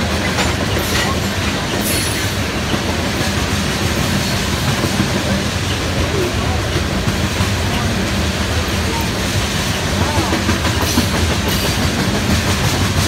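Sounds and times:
train wheels on rails: 0.0s - 13.0s.

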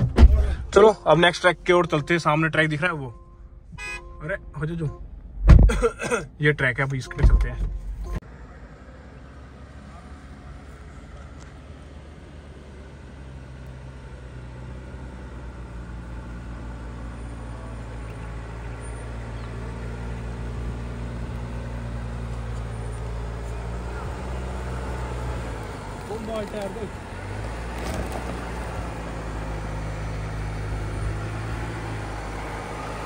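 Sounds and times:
vehicle engine running under load: 8.1s - 33.0s.

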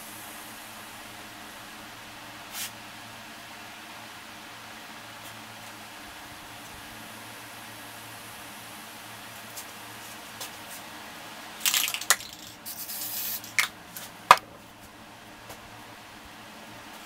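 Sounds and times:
aerosol spray can hissing: 11.6s - 13.7s
spray cans clicking and knocking: 11.6s - 13.7s.

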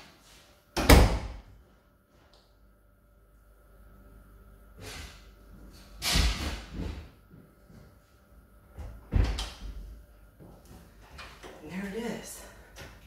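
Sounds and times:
stepladder knocking and thumping: 8.8s - 9.9s.

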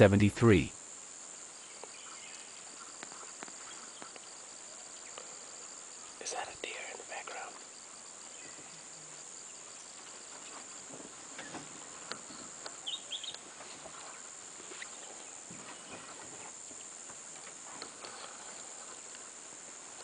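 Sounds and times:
steady high hiss: 0.0s - 20.0s
bird chirps: 12.3s - 13.4s.

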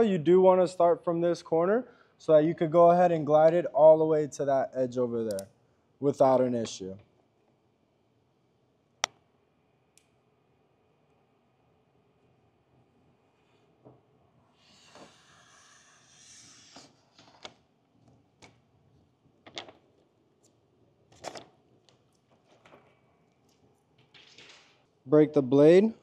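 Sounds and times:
light clicks and film crinkles: 20.4s - 24.9s.

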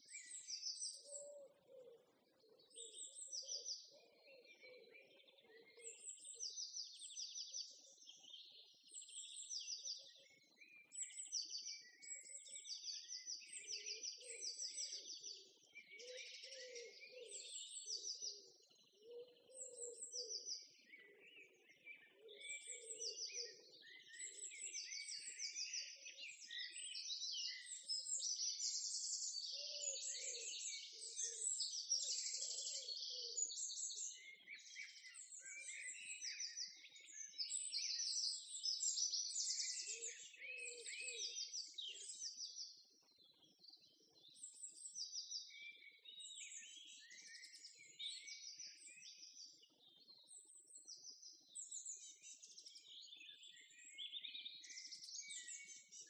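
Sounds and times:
songbirds chirping and trilling: 0.0s - 56.0s.

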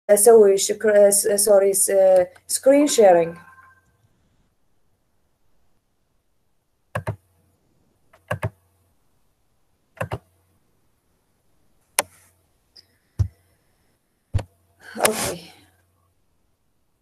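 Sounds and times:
computer mouse clicks: 7.0s - 7.2s, 8.1s - 8.6s, 10.0s - 10.3s.

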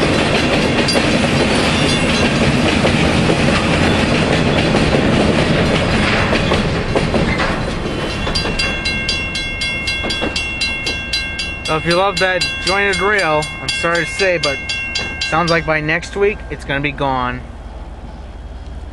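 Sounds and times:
crossing bell ringing: 0.0s - 2.6s, 6.8s - 17.6s
freight train rumbling over rails: 0.0s - 18.9s.

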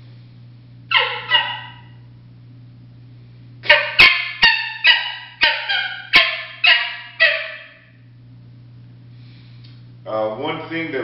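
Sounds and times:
coyote call yips and barks: 0.9s - 1.9s, 3.7s - 7.8s.

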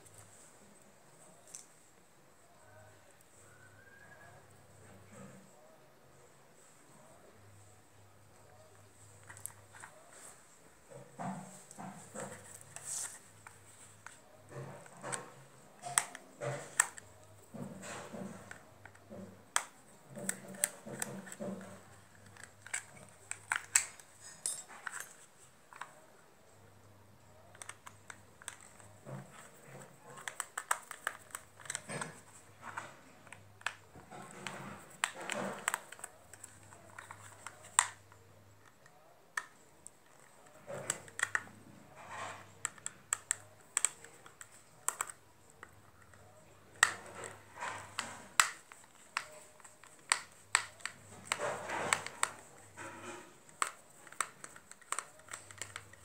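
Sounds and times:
screwdriver clicking on plastic: 53.5s - 56.0s.

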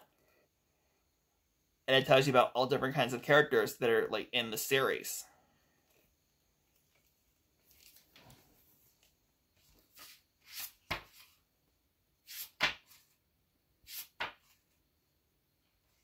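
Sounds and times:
book pages turning: 6.7s - 11.4s.

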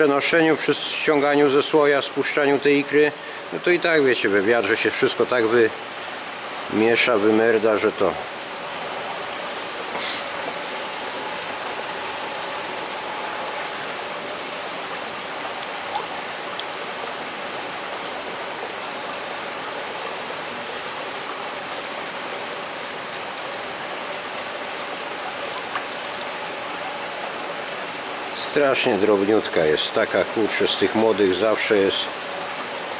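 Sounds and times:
running water rushing: 0.0s - 32.9s.

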